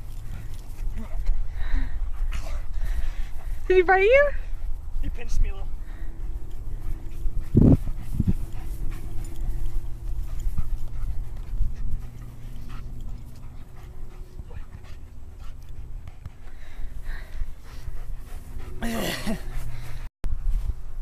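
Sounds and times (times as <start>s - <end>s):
dog panting: 0.0s - 20.1s.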